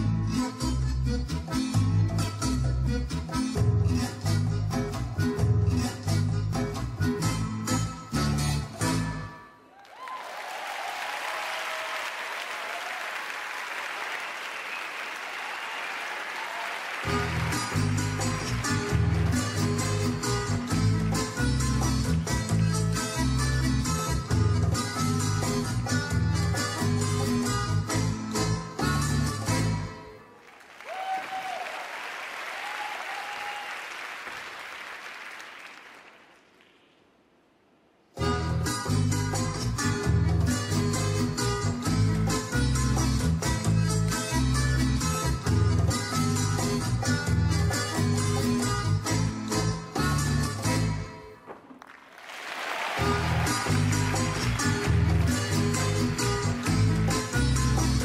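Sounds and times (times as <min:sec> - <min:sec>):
audience applauding: 0:09.7 - 0:19.7, 0:30.4 - 0:36.9, 0:51.6 - 0:57.3.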